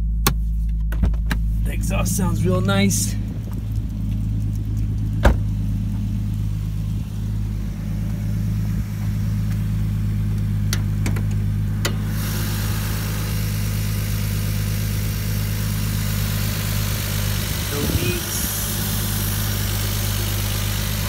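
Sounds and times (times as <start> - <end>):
car engine idling: 0.0 - 21.0
high hiss: 11.9 - 21.0.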